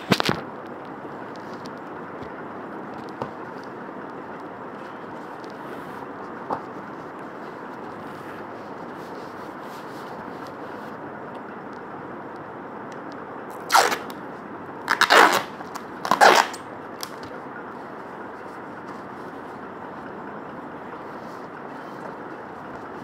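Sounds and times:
steady background noise: 0.0 - 23.0
packaging tearing: 14.9 - 17.2.

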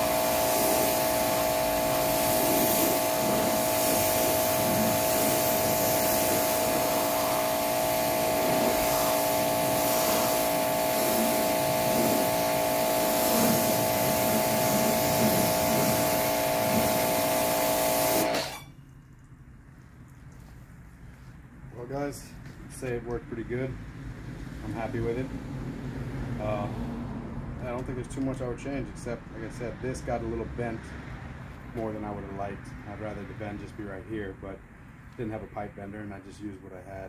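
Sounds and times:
pressure washer spraying water: 0.0 - 18.7.

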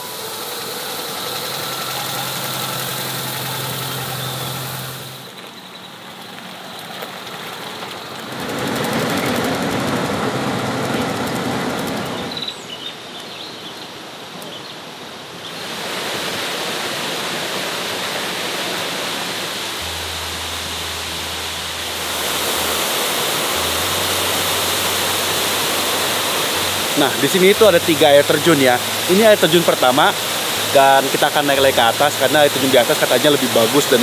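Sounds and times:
waterfall rushing: 0.0 - 5.4, 13.9 - 34.0
jeep engine running: 0.0 - 12.4, 19.6 - 34.0.

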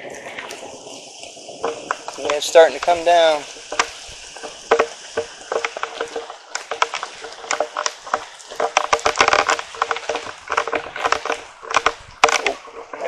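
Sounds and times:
hiss of falling rain: 0.0 - 13.0
raindrops hitting microphone: 0.0 - 13.0.

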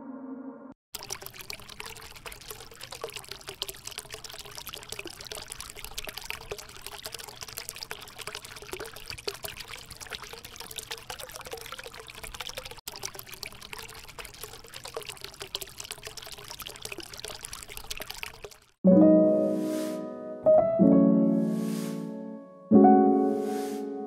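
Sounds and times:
water splashing into a tank: 0.9 - 18.8
music: 18.8 - 24.0.

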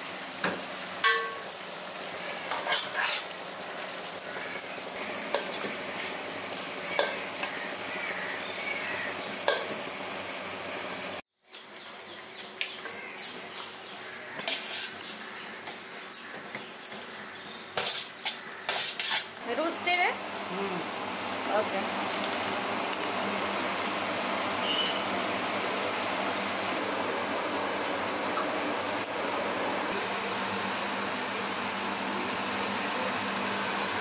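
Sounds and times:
sizzling hiss: 0.0 - 11.2
spoons scraping and knocking a pot: 2.5 - 3.3, 14.3 - 15.0, 17.8 - 19.3.

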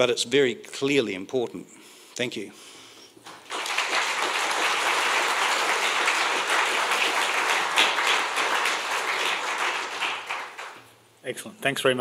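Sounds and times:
audience applauding: 3.3 - 10.9.

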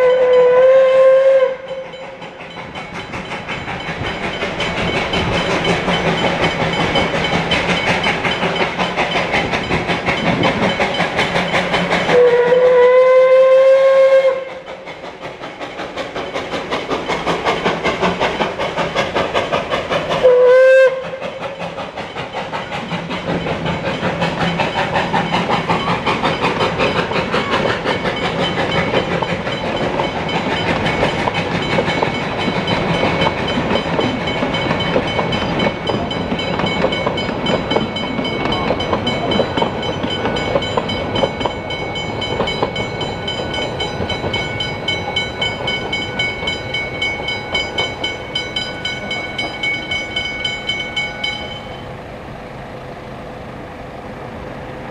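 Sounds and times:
steam whistle blasts: 0.0 - 2.2, 12.1 - 14.7, 20.2 - 21.4
train carriages clattering: 0.0 - 51.9
level crossing bell ringing: 31.7 - 51.8.

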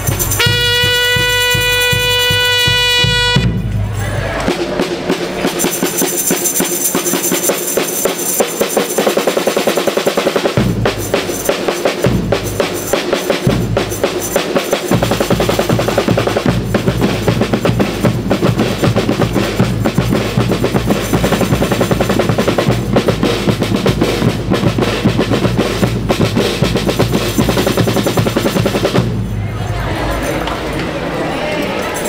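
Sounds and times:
drum section playing cadence: 0.0 - 30.7.

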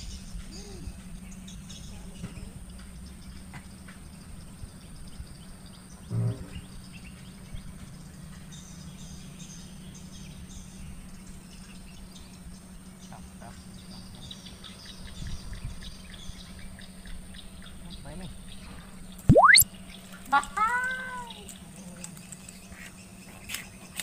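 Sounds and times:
high bird chirps: 19.3 - 19.6
short low croak: 19.3 - 19.6.

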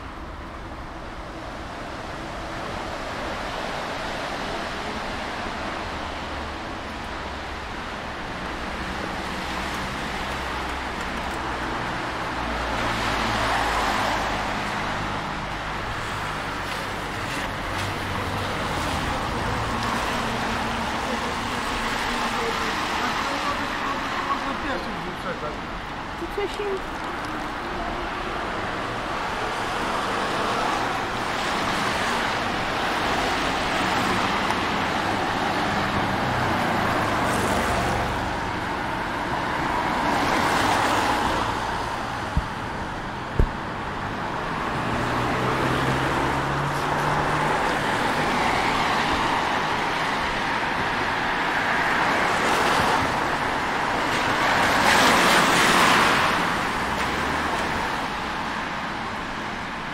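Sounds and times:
traffic road noise: 0.0 - 59.9.

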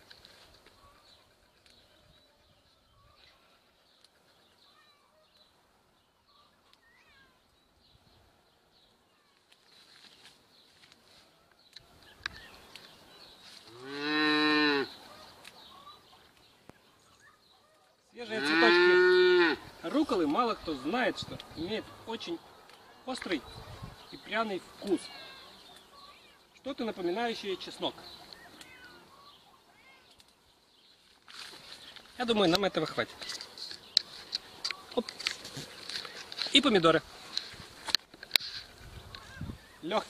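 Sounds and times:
leaves rustling: 0.0 - 2.0, 8.8 - 40.0
cow mooing: 13.7 - 14.9, 18.3 - 19.6
faint clicks: 28.3 - 28.8.

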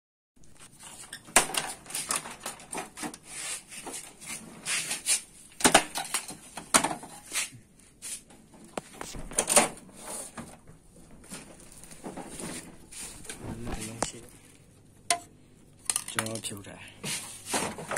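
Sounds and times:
plastic scraping: 8.6 - 14.4.

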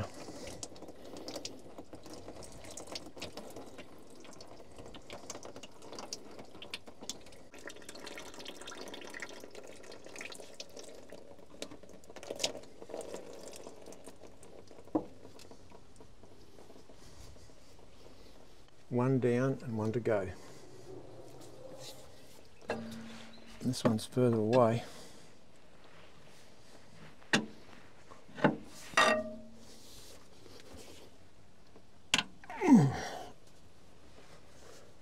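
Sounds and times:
oil trickling into bucket: 0.0 - 18.6.

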